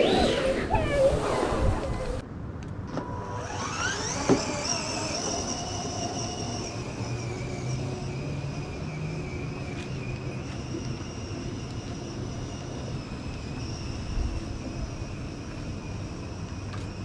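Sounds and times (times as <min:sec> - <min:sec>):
toy car electric motor whining: 0:03.1 - 0:17.0.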